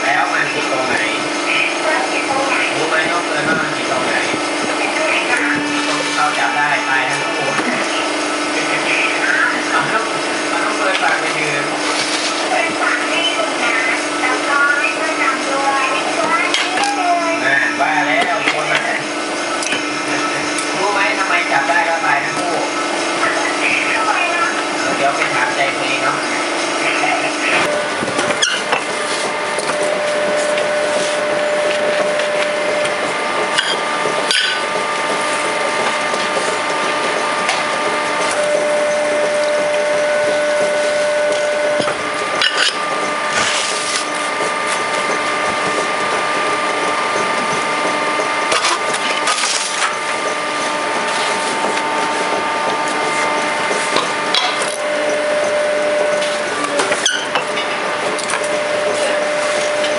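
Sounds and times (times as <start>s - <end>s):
brick press machine running: 0.0s - 59.9s.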